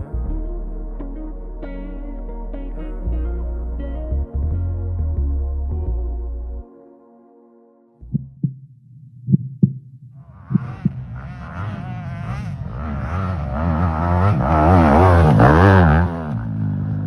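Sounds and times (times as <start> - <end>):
low thumps: 8.0 - 11.7
motocross bike engine revving: 10.2 - 17.0.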